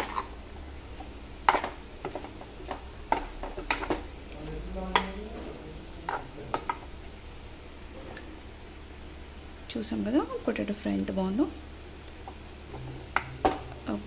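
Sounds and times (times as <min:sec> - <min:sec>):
potatoes sizzling in oil: 0:00.0 - 0:14.0.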